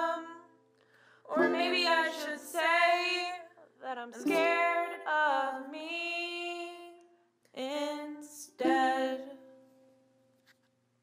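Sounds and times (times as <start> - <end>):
woman singing long held notes: 0.0 - 0.5, 1.3 - 7.0, 7.6 - 9.5
breath between notes: 0.8 - 1.3.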